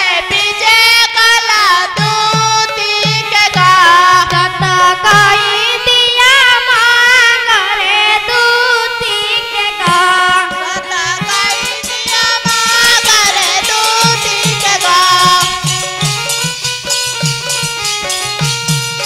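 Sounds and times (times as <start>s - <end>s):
child singing through microphone: 0.0s - 19.0s
hand drum: 9.8s - 19.0s.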